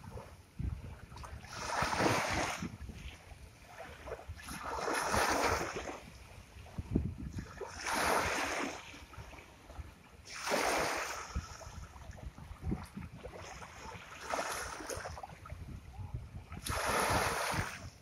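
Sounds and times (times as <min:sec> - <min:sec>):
ocean surf washing ashore: 0:16.6 - 0:17.9.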